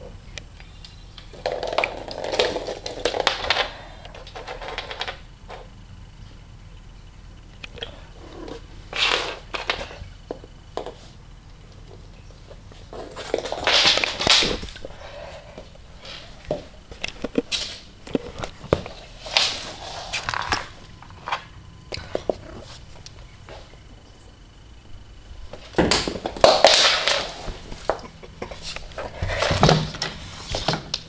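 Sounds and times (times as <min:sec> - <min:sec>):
rustling and scuffling: 0:08.2 - 0:24.4.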